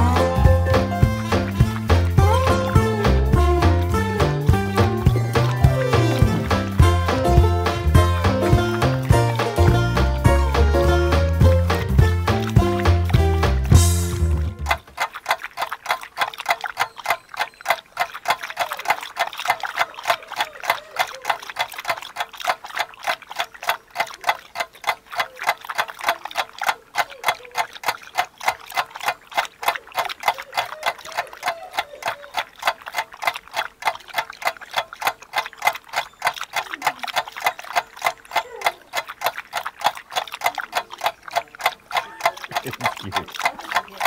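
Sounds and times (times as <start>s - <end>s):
dog licking and smacking mouth: 14.6s - 44.0s.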